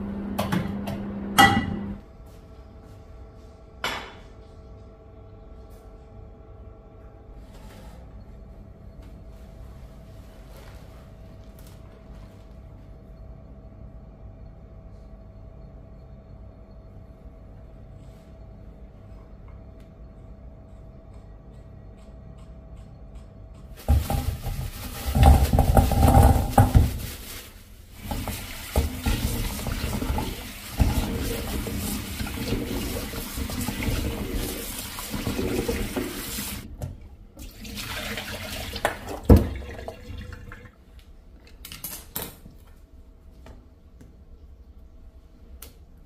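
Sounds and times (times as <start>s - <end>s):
tap water running into a bowl: 37.4s - 40.7s.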